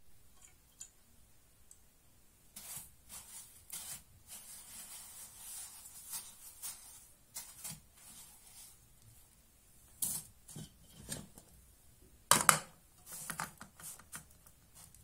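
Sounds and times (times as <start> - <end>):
sesame seeds rustling in bowl: 2.6 - 9.0.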